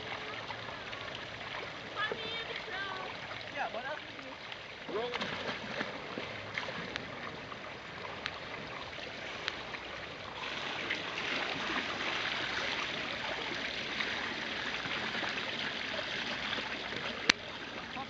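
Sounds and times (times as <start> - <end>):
water pouring onto pool surface: 10.4 - 18.0.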